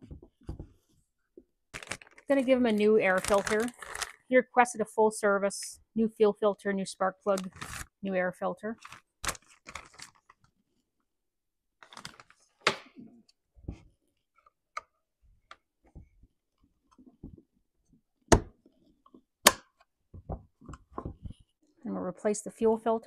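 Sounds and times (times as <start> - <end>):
plastic bag crinkling: 1.7 - 4.3, 7.3 - 7.9, 8.8 - 10.5, 11.8 - 12.5.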